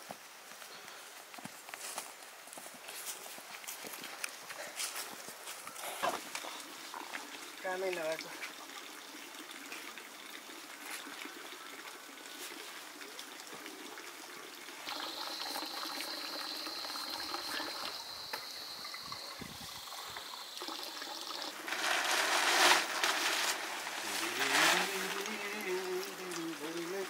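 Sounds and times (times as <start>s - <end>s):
water splashing in metal basin: 14.8s - 27.0s
thin high whine: 14.9s - 25.8s.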